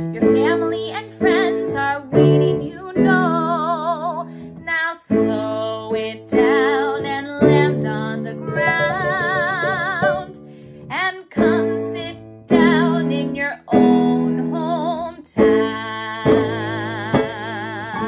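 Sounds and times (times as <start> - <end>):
woman singing with vibrato: 0.0 - 18.0.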